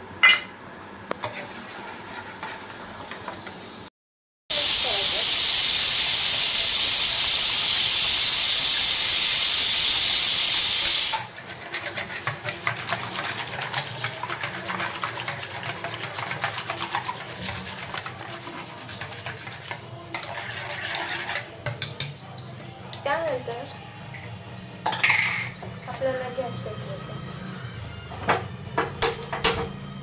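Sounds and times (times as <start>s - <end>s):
loud steady hiss: 4.5s - 11.3s.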